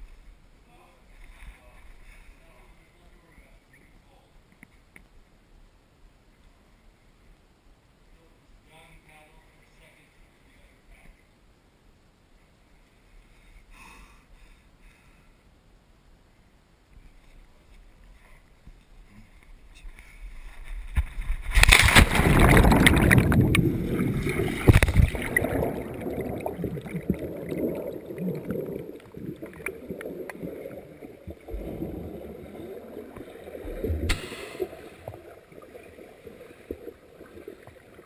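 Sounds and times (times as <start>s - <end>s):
underwater bubbling and gurgling: 20.8s - 38.0s
loud splash into pool: 21.4s - 27.2s, 33.7s - 34.9s.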